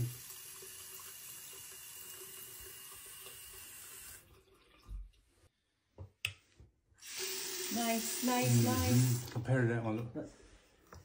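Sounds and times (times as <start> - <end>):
faucet running water: 0.0 - 5.5, 7.0 - 9.5.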